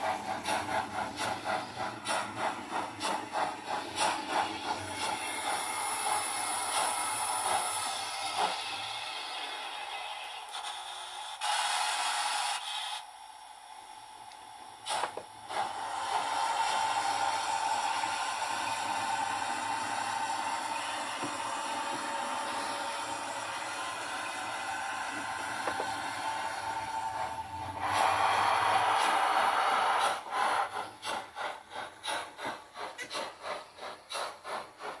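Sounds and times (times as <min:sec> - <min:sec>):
wheels running on rails: 0:00.0 - 0:11.6, 0:14.8 - 0:35.0
model train motor whine: 0:00.0 - 0:35.0.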